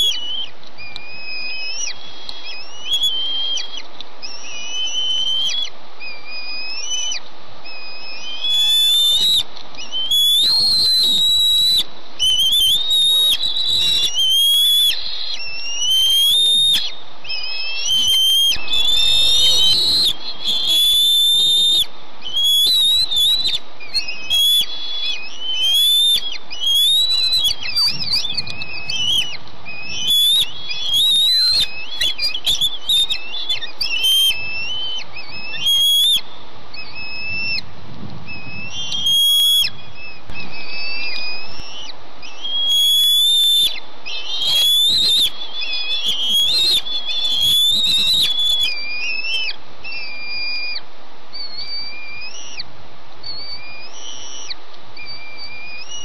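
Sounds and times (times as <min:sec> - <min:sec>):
eaglets chirping and squealing: 0:00.0 - 0:56.0
steady background hiss: 0:00.0 - 0:56.0.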